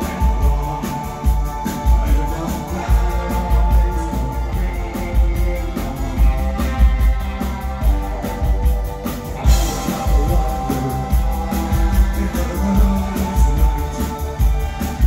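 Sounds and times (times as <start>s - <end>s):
electric guitar: 0.0s - 15.0s
rock band playing: 0.0s - 15.0s
synthesizer keyboards: 0.0s - 15.0s.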